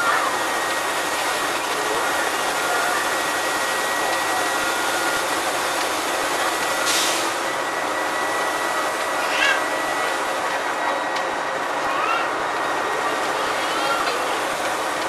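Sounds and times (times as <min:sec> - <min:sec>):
bus engine and road noise: 0:00.0 - 0:15.0.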